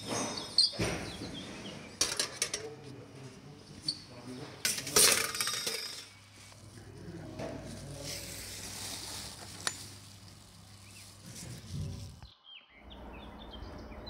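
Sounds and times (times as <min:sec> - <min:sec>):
steel pipe caps clinking: 0:04.6 - 0:06.2
flexible metal duct rustling: 0:07.2 - 0:12.3.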